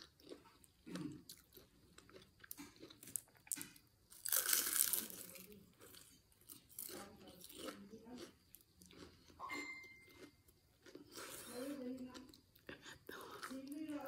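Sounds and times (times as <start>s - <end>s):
chewing and mouth sounds: 0.0s - 14.0s
crunch of biting crisp wrapper: 0.2s - 9.4s.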